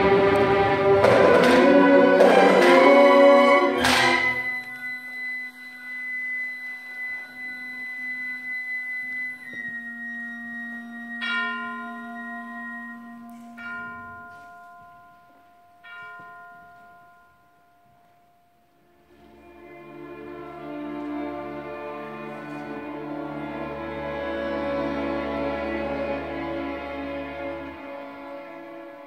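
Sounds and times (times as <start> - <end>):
symphony orchestra playing chords: 0.0 - 15.9, 18.8 - 29.0
bell-like notes ringing: 4.2 - 18.6.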